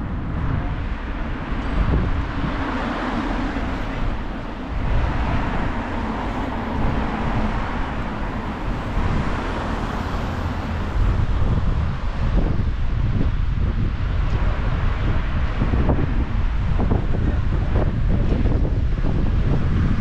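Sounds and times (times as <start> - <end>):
road traffic passing: 0.0 - 20.0
wind buffeting microphone: 0.0 - 20.0.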